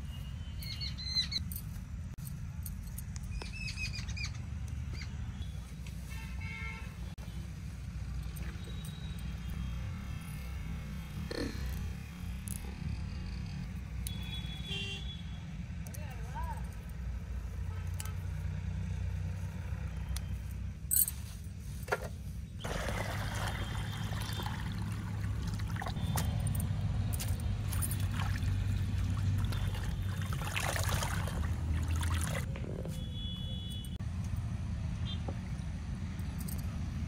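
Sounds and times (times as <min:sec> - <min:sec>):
water pouring into plastic basin: 0:22.6 - 0:26.0, 0:28.0 - 0:32.4.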